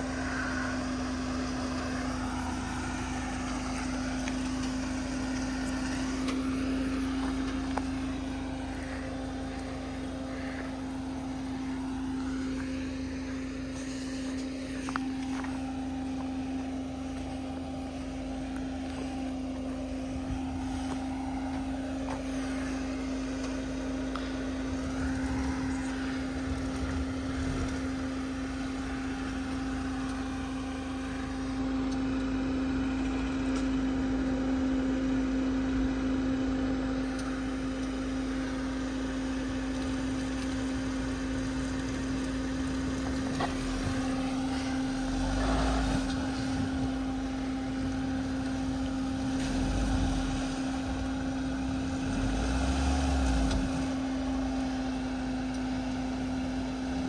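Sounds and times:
car engine running at low revs: 0.0 - 57.0
deep engine rumbles: 0.0 - 57.0.

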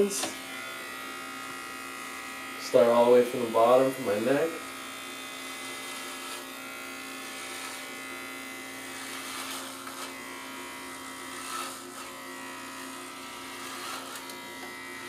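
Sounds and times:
electric hair clipper buzzing: 0.0 - 15.0.

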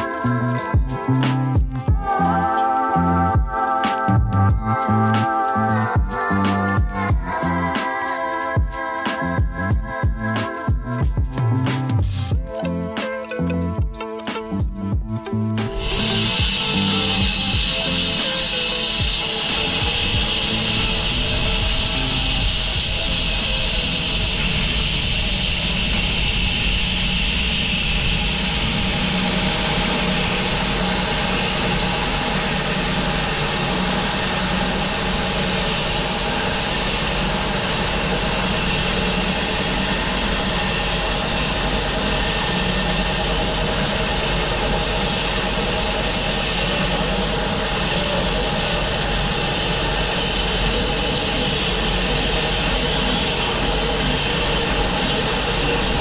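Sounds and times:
bandsaw mill engine running: 15.4 - 56.0.

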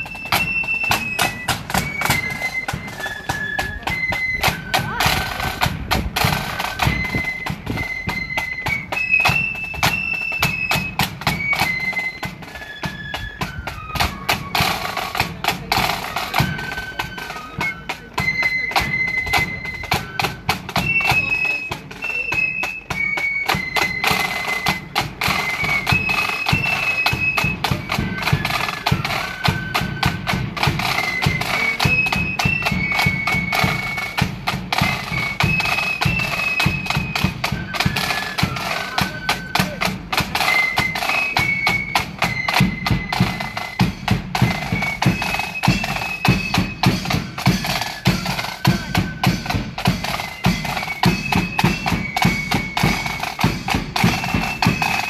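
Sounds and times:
side drums fast rhythm: 0.0 - 12.5, 13.4 - 55.0
wind instruments high melody: 0.0 - 55.0.

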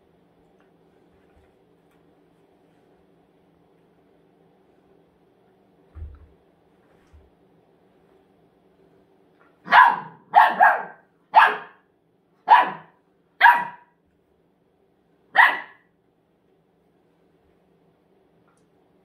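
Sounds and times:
puppy barking: 9.6 - 14.0, 15.4 - 15.9.

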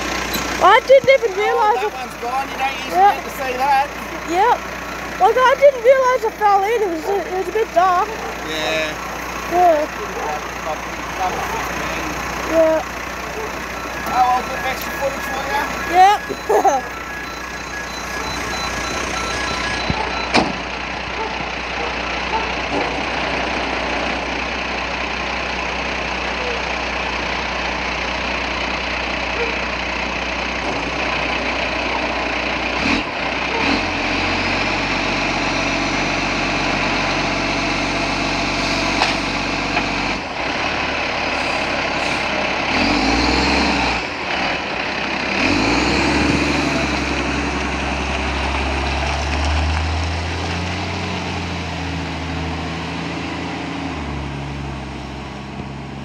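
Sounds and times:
garbage truck diesel engine running: 0.0 - 56.0
reversing alarm beeping: 13.5 - 20.8.

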